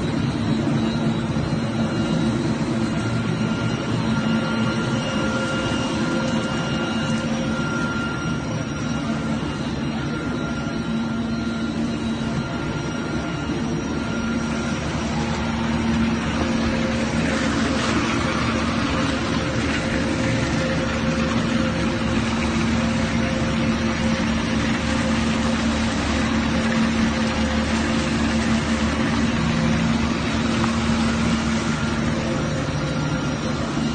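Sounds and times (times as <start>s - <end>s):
machinery hum: 0.0s - 33.9s.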